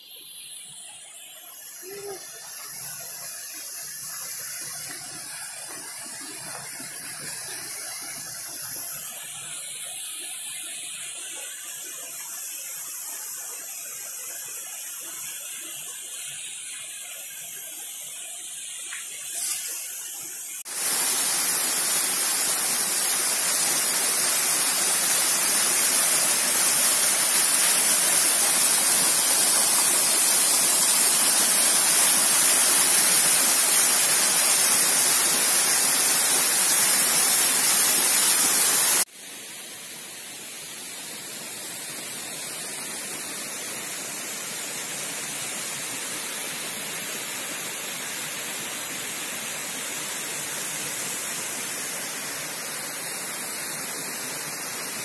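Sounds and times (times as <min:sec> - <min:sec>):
stream over stones: 0:00.0 - 0:55.0
waterfall rushing: 0:20.6 - 0:39.1.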